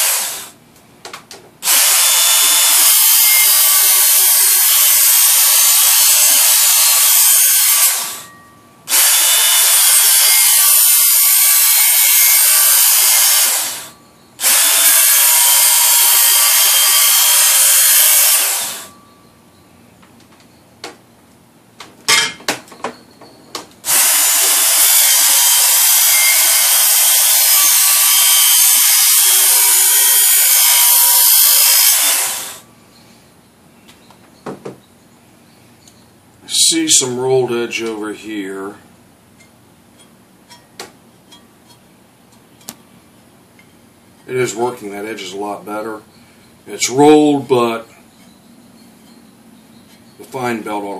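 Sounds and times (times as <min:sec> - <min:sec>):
belt sharpener grinding steel: 0:01.6 - 0:19.0, 0:23.8 - 0:32.7.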